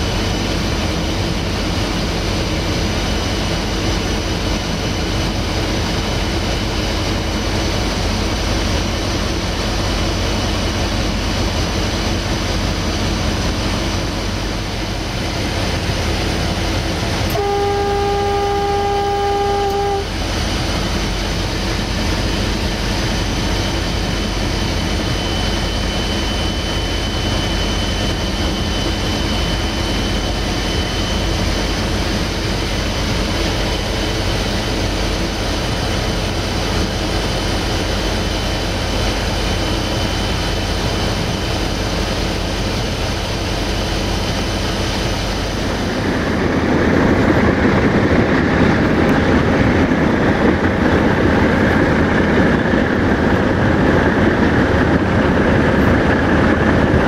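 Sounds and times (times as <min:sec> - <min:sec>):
locomotive engine running: 0:00.0 - 0:57.0
locomotive horn blast: 0:17.2 - 0:20.3.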